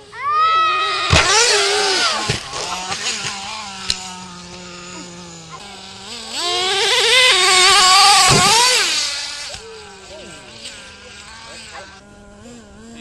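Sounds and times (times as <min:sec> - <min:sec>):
small engine revving and wailing: 0:00.0 - 0:13.0
sharp thud: 0:07.2 - 0:09.5.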